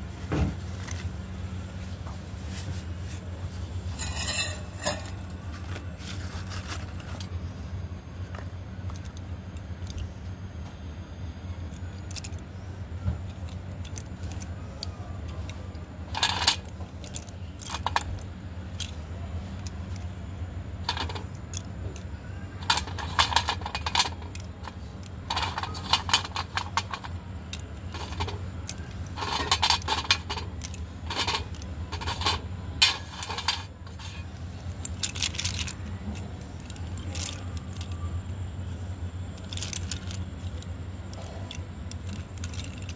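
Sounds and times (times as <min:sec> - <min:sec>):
slate pencils clicking together: 0:08.9 - 0:10.1, 0:11.7 - 0:12.4, 0:13.3 - 0:20.1, 0:20.9 - 0:38.4, 0:39.3 - 0:42.9.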